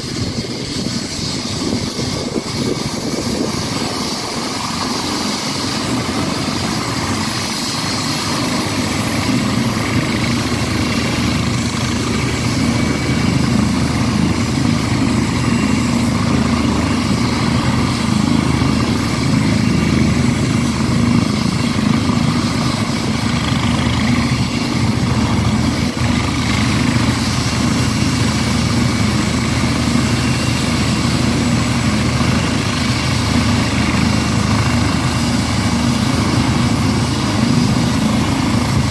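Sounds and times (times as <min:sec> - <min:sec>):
helicopter turbine whine and rotor drone: 0:00.0 - 0:38.9.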